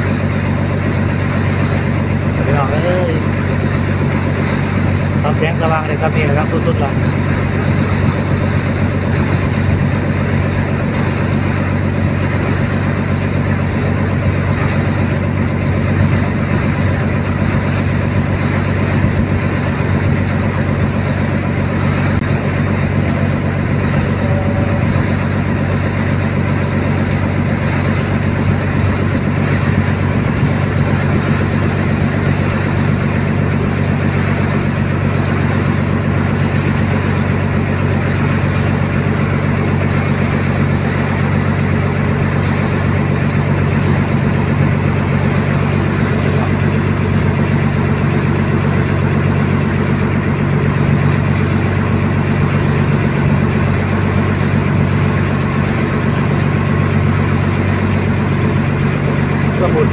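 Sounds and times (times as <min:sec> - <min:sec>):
boat engine drone: 0:00.0 - 0:59.9
hiss of water and wind: 0:00.0 - 0:59.9.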